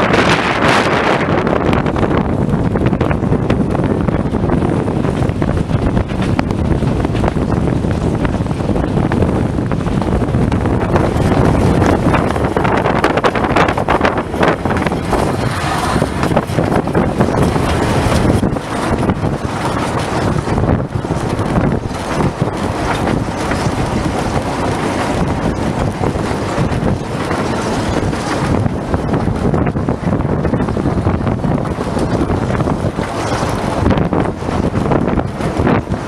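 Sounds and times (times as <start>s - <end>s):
train wheels rumbling and rattling: 0.0s - 36.0s
wind buffeting microphone: 0.0s - 36.0s.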